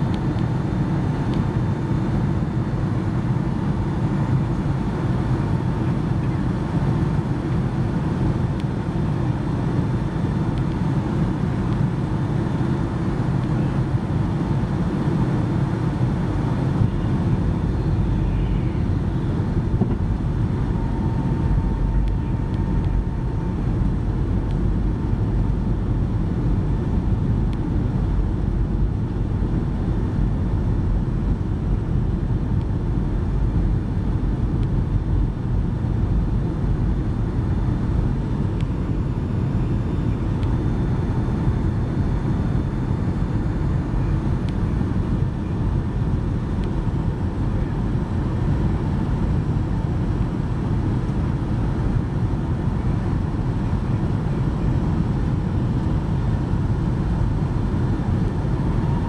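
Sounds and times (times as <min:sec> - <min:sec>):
airplane cabin engine rumble: 0:00.0 - 0:59.0
faint steady whine: 0:00.0 - 0:59.0.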